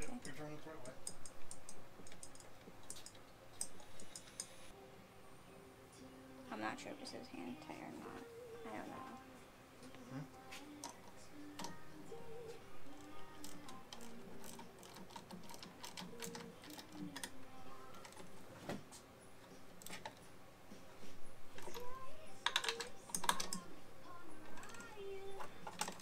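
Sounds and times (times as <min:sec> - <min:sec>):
tool clicking and tapping on nut: 0:00.2 - 0:04.5, 0:13.0 - 0:17.4, 0:21.6 - 0:23.6.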